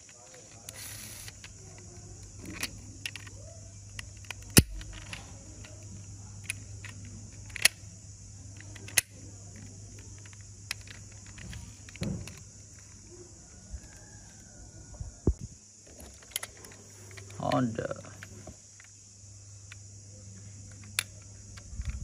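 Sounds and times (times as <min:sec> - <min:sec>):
metal toy clicking and rattling: 0:00.0 - 0:07.8, 0:08.5 - 0:13.0, 0:16.1 - 0:18.0
steady low hum: 0:00.0 - 0:22.0.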